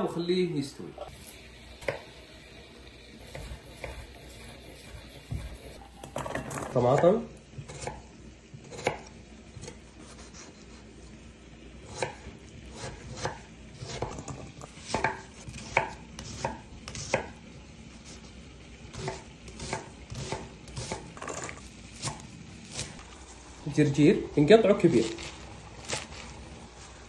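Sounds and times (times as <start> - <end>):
knife chopping on wooden board: 3.3 - 5.8, 8.6 - 9.8, 11.9 - 17.4, 18.9 - 23.0.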